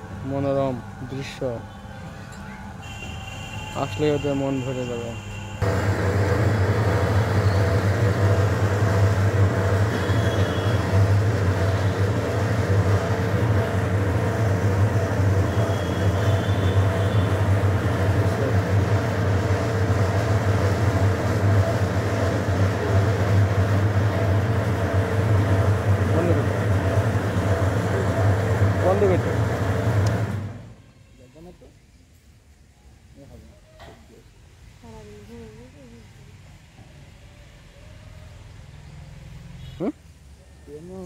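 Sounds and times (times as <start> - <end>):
ride motor humming and rumbling: 5.6 - 30.7.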